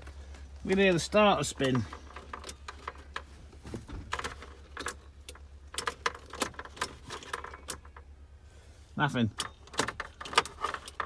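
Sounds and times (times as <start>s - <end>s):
ignition key clicking: 4.1s - 8.1s, 9.3s - 11.0s.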